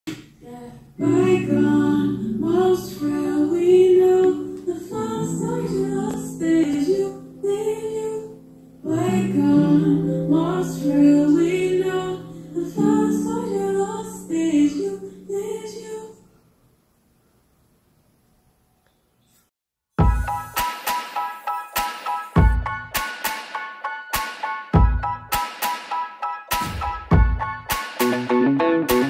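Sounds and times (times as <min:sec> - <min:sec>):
woman singing: 0:00.4 - 0:16.3.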